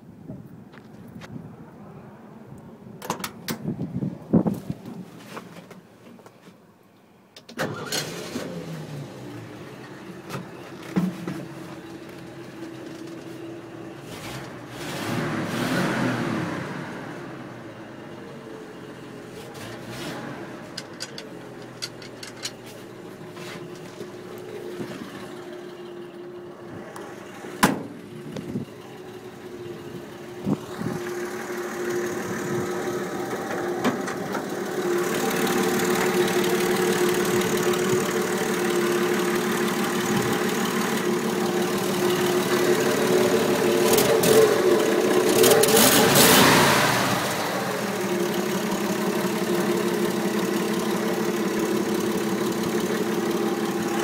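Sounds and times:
pickup engine idling: 0:20.4 - 0:45.8, 0:47.0 - 0:54.0.

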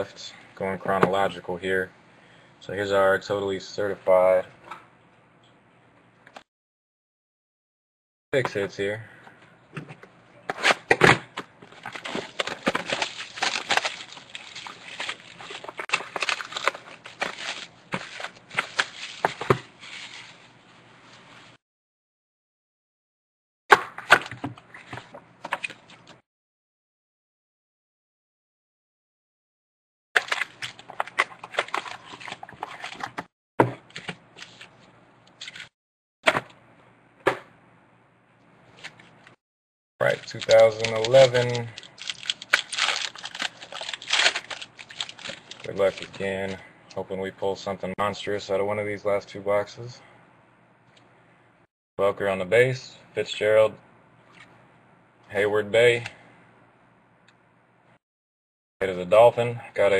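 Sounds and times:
plastic shrink wrap crinkling: 0:11.7 - 0:20.5, 0:30.2 - 0:33.2, 0:40.0 - 0:46.6.

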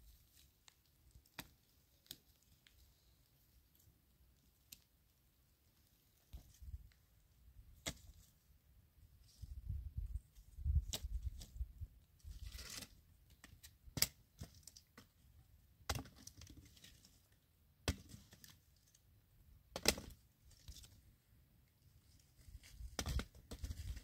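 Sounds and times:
rustle of twigs: 0:00.0 - 0:11.6, 0:12.2 - 0:15.2
dry sticks snapping: 0:00.6 - 0:02.8.

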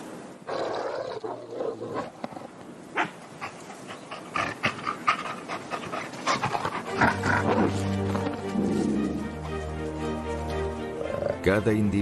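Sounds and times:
wolves snarling and growling: 0:00.5 - 0:09.5
wolves snapping and calling: 0:00.9 - 0:09.4
wolves panting: 0:03.0 - 0:09.6.

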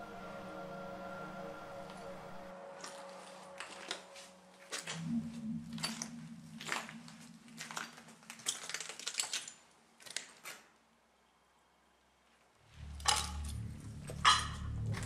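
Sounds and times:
low steady hum: 0:00.0 - 0:08.5, 0:11.0 - 0:15.0
footsteps crunching over rubble: 0:02.7 - 0:10.8.

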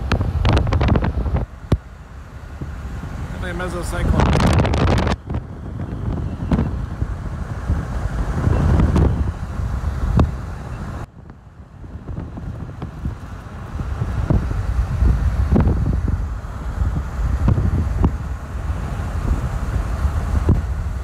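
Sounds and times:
wind buffeting the microphone: 0:00.0 - 0:21.0.

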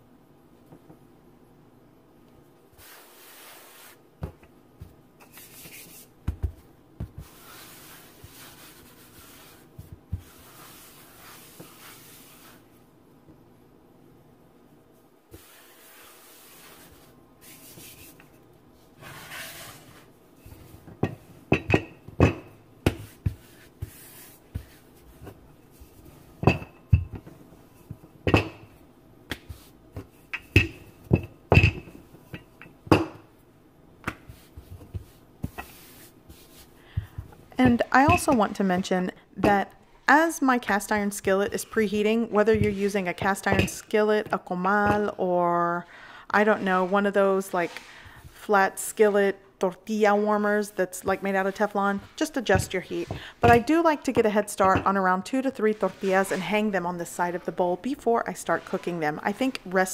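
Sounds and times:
hands patting dough: 0:02.8 - 0:13.4, 0:19.0 - 0:33.4, 0:34.0 - 0:39.6.

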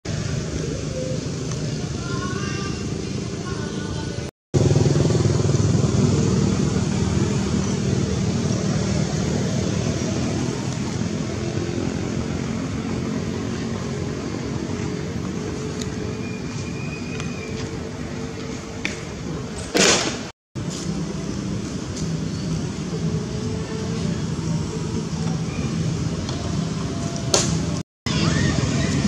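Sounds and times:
vehicle engine humming: 0:00.0 - 0:19.8, 0:20.6 - 0:29.0.

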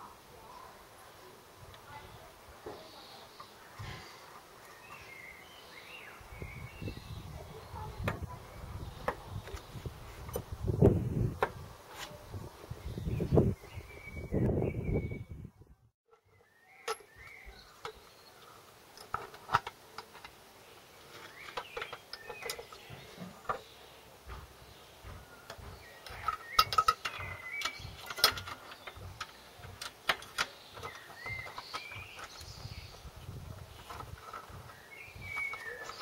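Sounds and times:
clicks and knocks of handling: 0:16.1 - 0:20.4, 0:21.0 - 0:23.7, 0:24.3 - 0:36.0.

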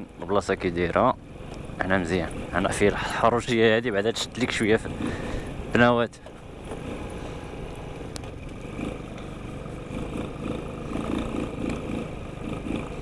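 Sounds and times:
scooter engine running: 0:03.6 - 0:13.0.

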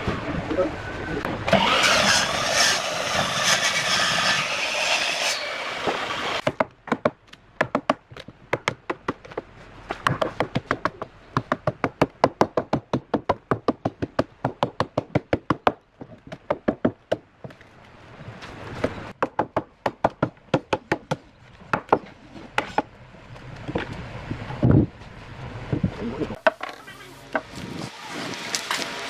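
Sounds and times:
saw cutting through log: 0:01.5 - 0:06.4.

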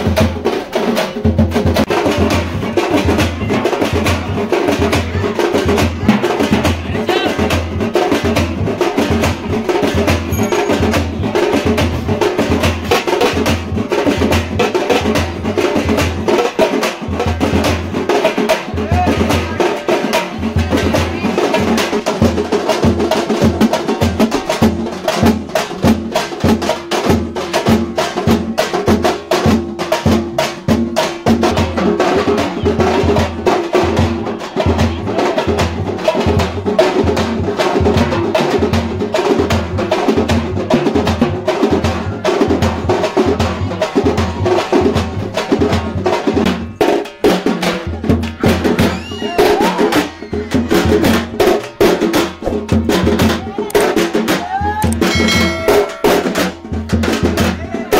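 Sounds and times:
bass drum beating: 0:01.3 - 0:16.3.

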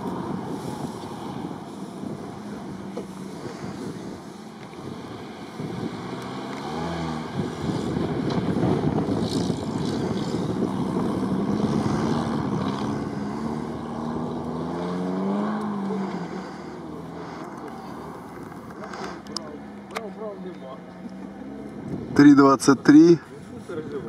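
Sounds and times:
off-road vehicle engine revving: 0:00.0 - 0:23.3.

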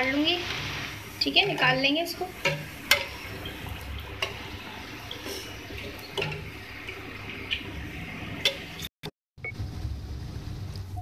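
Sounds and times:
food deep-frying in hot oil: 0:00.0 - 0:11.0.

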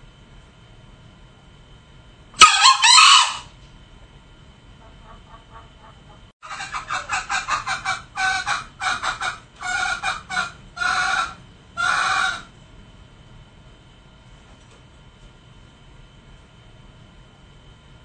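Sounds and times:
junglefowl clucking: 0:02.4 - 0:03.5, 0:04.8 - 0:12.5
junglefowl calling: 0:02.4 - 0:03.6, 0:04.8 - 0:12.5.

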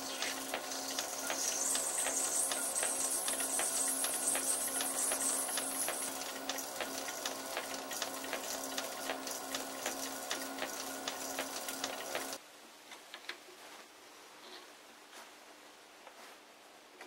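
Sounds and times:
stone scraping on spinning steel: 0:00.0 - 0:08.6
lathe running: 0:00.0 - 0:12.4.

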